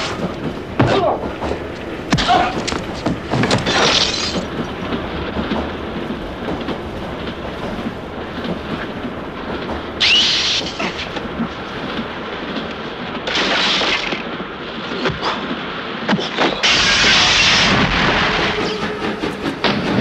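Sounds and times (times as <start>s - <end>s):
loud rush of noise with whine: 0.0s - 20.0s
train rumbling inside compartment: 0.0s - 20.0s.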